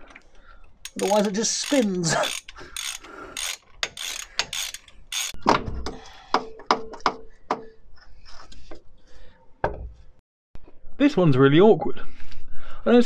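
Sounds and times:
ratchet wrench clicking: 0.8 - 5.4.

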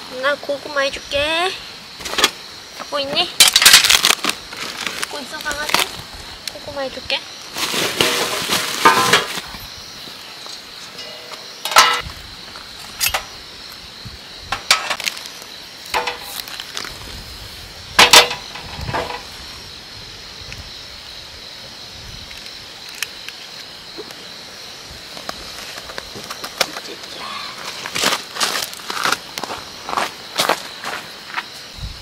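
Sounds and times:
insect chirring: 0.0 - 32.0
metallic clanks: 10.9 - 12.1, 13.0 - 13.3, 15.9 - 16.4.

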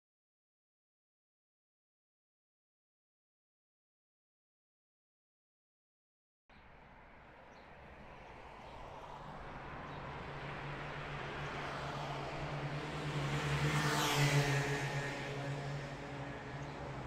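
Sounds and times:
vehicle passing by: 8.9 - 17.0.

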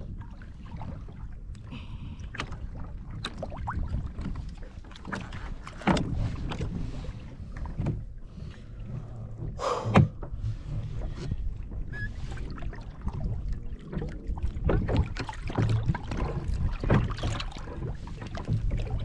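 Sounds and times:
knocks and thuds on boat: 0.0 - 19.0
water and wind rumble: 0.0 - 19.0.

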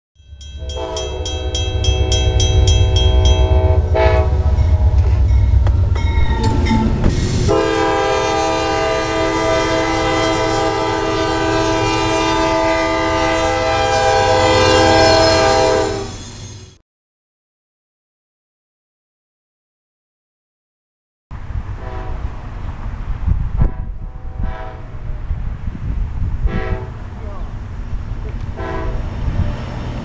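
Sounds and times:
heavy rumble of train: 0.2 - 16.8, 21.3 - 30.0
locomotive air horn: 0.6 - 5.6, 7.4 - 16.2, 21.8 - 22.4, 23.6 - 25.0, 26.4 - 27.0, 28.6 - 29.1.

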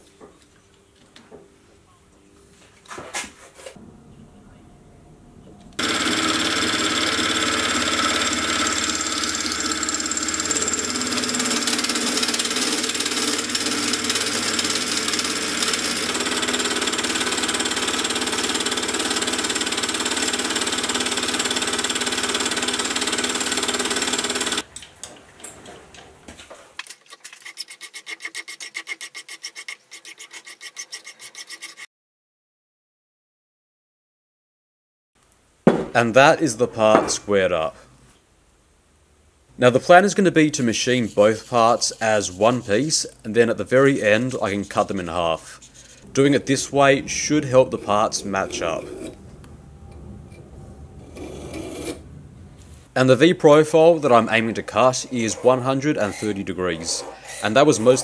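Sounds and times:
milling machine cutting steel: 5.8 - 24.6.

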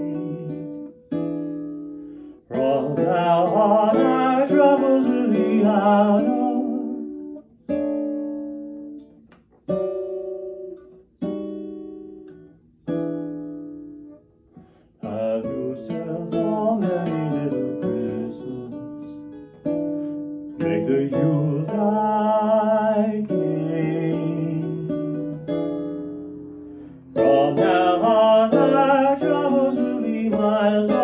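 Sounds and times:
person singing: 0.0 - 0.9, 2.5 - 7.2, 15.0 - 19.1, 20.6 - 25.2, 27.1 - 31.0
acoustic guitar fingerstyle: 0.0 - 31.0.

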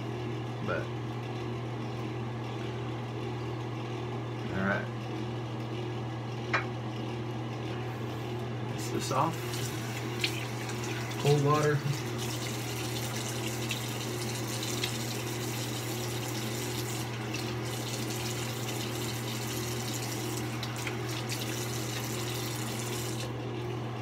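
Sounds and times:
tap water running into sink: 9.4 - 23.3.

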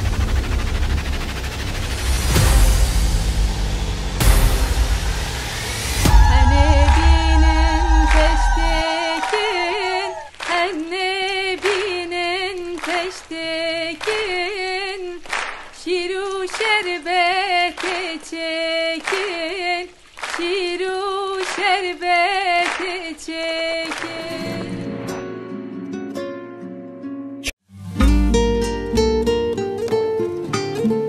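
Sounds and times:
woman singing with vibrato: 6.1 - 24.9.

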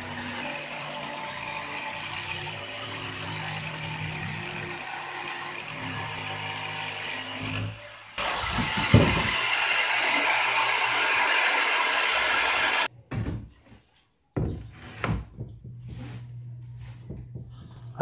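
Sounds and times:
electric saw cutting plywood: 0.0 - 12.9.

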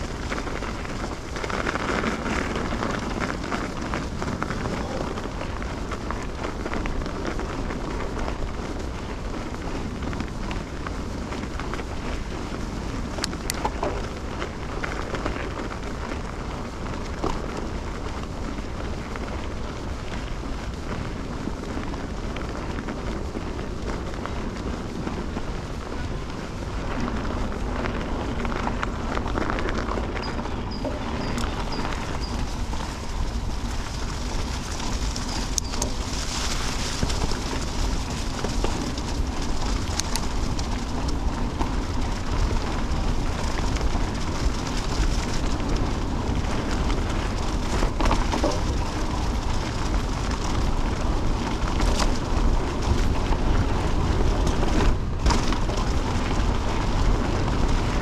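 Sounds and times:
bike tyres rumbling on dirt: 0.0 - 58.0
wind on microphone: 0.0 - 58.0
bike clicks and knocks: 13.1 - 18.3, 26.9 - 58.0.

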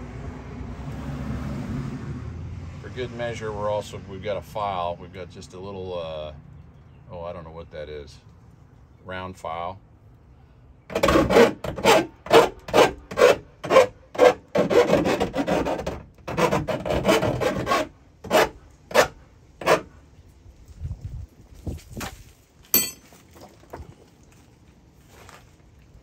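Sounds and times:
file rasping on sheet metal: 10.9 - 20.0.

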